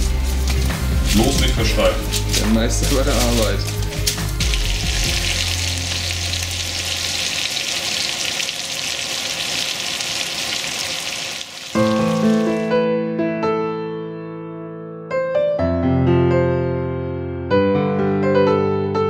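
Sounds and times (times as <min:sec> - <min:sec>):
piano music: 0:00.0 - 0:07.7, 0:11.7 - 0:19.0
food sizzling in a pan: 0:00.0 - 0:12.7.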